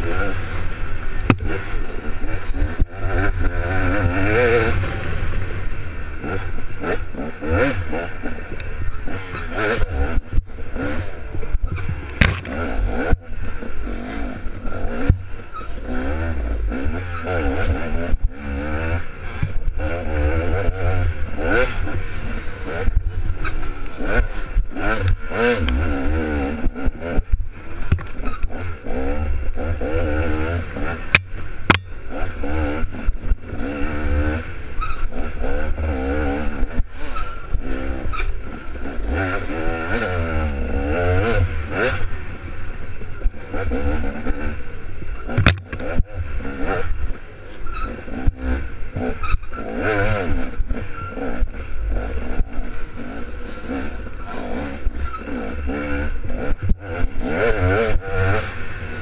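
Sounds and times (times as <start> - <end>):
dirt bike engine revving: 0.0 - 59.0
knocks and rattles from bumps: 45.2 - 46.0.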